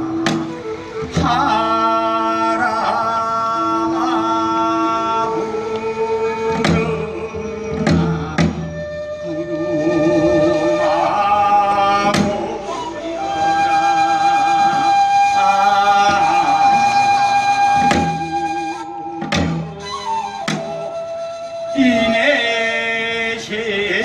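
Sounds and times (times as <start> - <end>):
bamboo flute: 0.0 - 24.0
man singing with vibrato: 1.0 - 17.7, 21.7 - 24.0.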